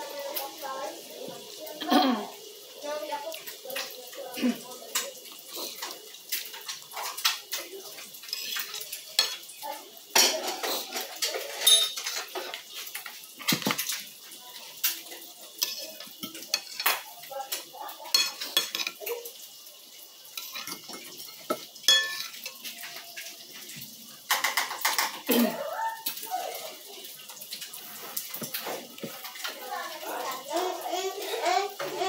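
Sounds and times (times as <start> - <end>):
metal spoon clinking on glass bowl: 11.6 - 12.2, 20.4 - 22.6.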